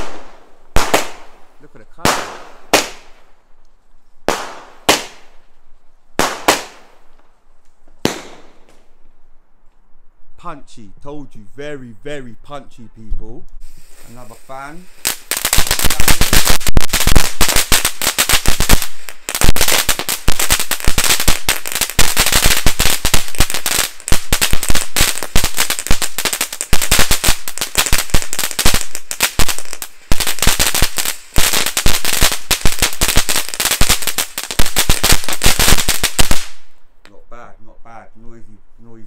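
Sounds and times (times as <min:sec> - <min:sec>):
firework barrage: 0:00.0 - 0:03.3, 0:04.2 - 0:05.4, 0:06.2 - 0:07.2, 0:08.0 - 0:08.9, 0:13.6 - 0:36.8.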